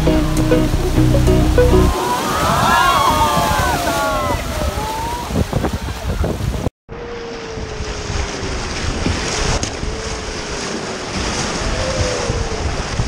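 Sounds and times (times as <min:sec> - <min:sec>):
wind buffeting microphone: 0:00.7 - 0:13.0
whitewater rapids splashing: 0:01.9 - 0:06.1.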